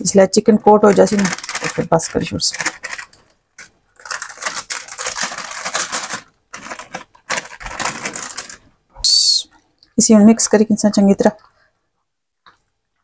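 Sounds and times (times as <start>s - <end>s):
plastic bag crinkling: 0.2s - 8.8s.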